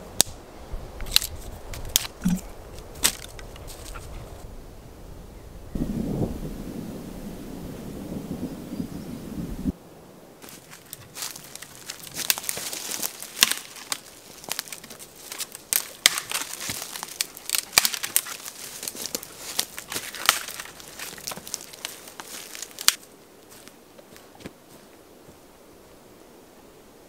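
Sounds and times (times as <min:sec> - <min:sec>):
dry twigs snapping: 0:01.0 - 0:04.2, 0:10.4 - 0:24.2.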